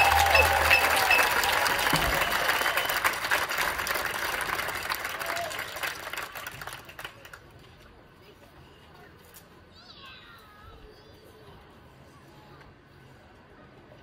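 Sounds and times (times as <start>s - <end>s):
audience applause: 0.0s - 7.4s.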